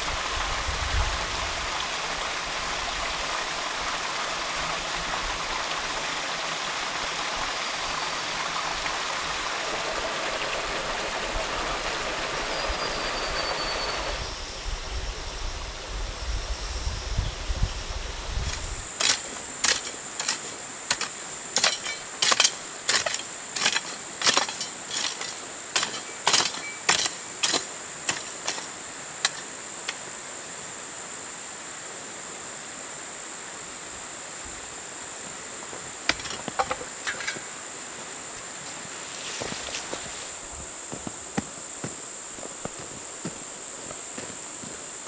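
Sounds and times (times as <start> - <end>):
high-pitched insect trill: 12.2 - 45.0.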